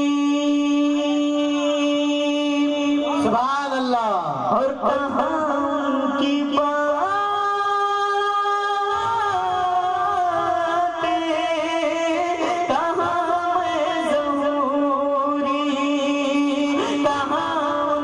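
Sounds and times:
man singing into a microphone: 0:00.0 - 0:18.0.

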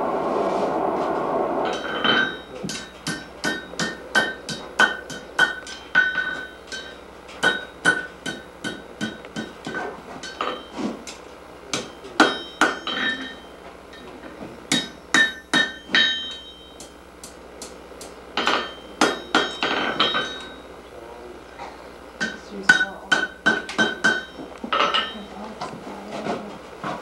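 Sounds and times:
hammer striking iron on anvil: 0:01.7 - 0:10.8, 0:11.7 - 0:14.0, 0:14.7 - 0:20.6, 0:22.2 - 0:25.2.

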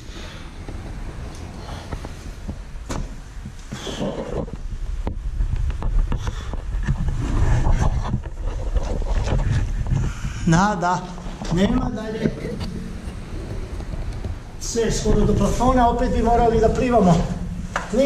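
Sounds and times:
microphone handling rumble: 0:00.6 - 0:18.0
knocks and clicks of movement: 0:11.3 - 0:15.5.

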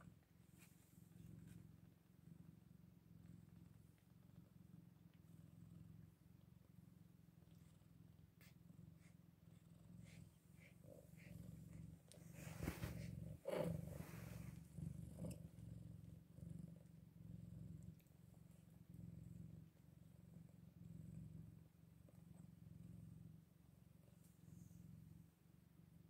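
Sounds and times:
cat purring: 0:00.0 - 0:26.0
rustling and handling noises: 0:10.6 - 0:15.2.

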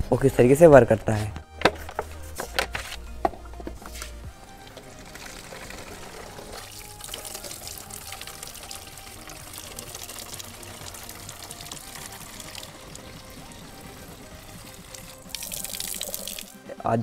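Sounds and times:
tap water filling plastic bottle: 0:04.7 - 0:16.5.

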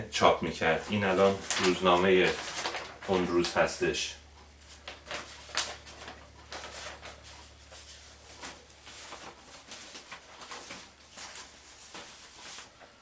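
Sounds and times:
newspaper rustling and crinkling: 0:00.4 - 0:13.0.

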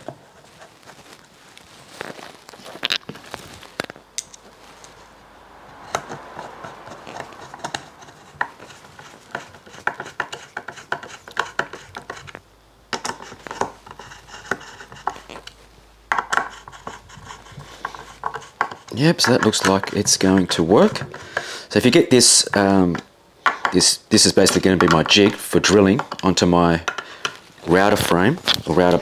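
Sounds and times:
sharp clicks and knocks: 0:05.8 - 0:17.0.

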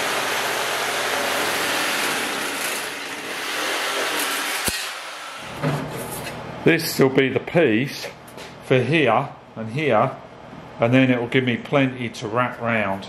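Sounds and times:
power shear cutting sheet metal: 0:00.0 - 0:06.4.

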